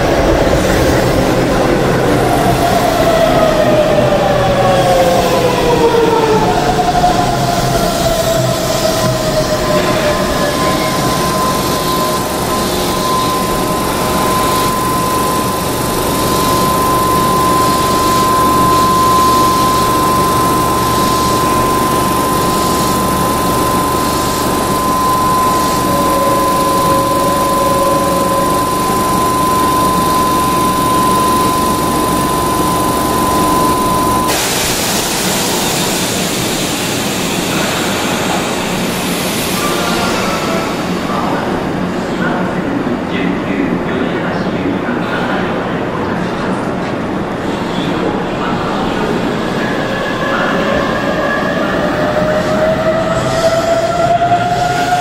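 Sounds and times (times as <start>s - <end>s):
train air compressor whining: 0.0s - 42.0s, 46.9s - 55.0s
air hissing: 7.8s - 41.2s.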